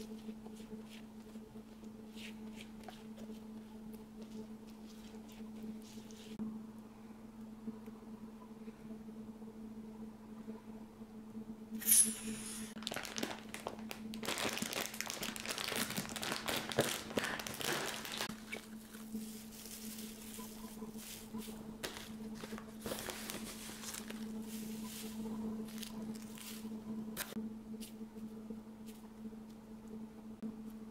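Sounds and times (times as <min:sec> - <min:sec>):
crinkling and rustling handling: 0:00.0 - 0:06.4, 0:12.8 - 0:28.0
steady hum: 0:00.0 - 0:30.9.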